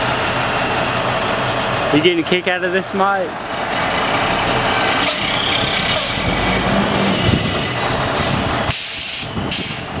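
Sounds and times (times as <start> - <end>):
truck engine running: 0.0 - 10.0
air brakes hissing: 8.2 - 10.0.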